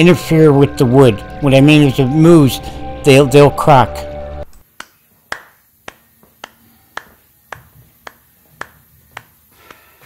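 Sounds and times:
sharp ticks at even beat: 4.8s - 9.8s.

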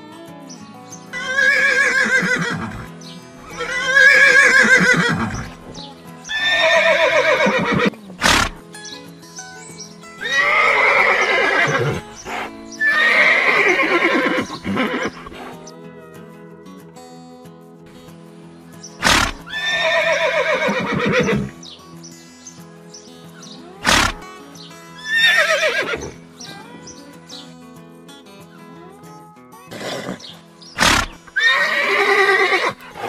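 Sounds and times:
background music: 0.0s - 33.0s
horse neighing: 1.2s - 5.7s, 6.3s - 8.6s, 10.2s - 15.7s, 19.0s - 21.6s, 23.8s - 24.2s, 25.0s - 26.2s, 29.7s - 33.0s.

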